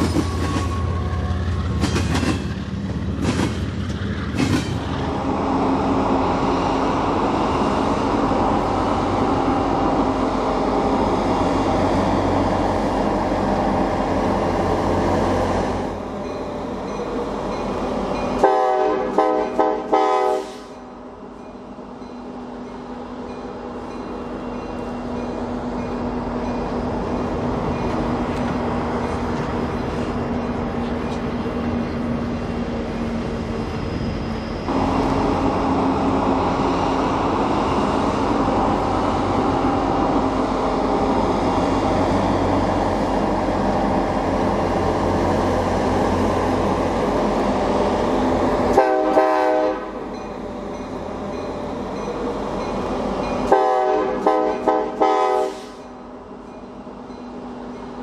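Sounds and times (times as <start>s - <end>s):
diesel train engine drone: 0.0s - 58.0s
rail rumble: 0.0s - 58.0s
locomotive horn blasts: 18.4s - 20.7s, 48.7s - 50.0s, 53.5s - 55.8s.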